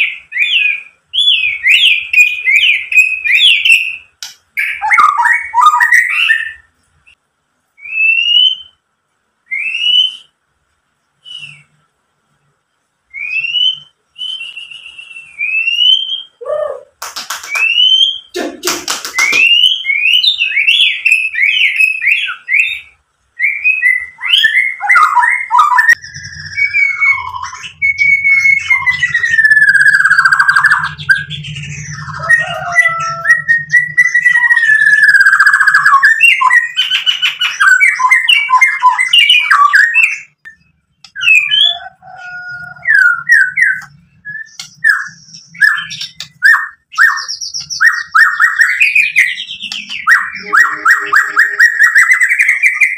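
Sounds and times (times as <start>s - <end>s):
songbird whistling song: 0.0s - 10.5s, 11.2s - 11.9s, 13.1s - 18.4s, 19.0s - 52.9s
harsh rasping bird notes: 41.2s - 52.9s.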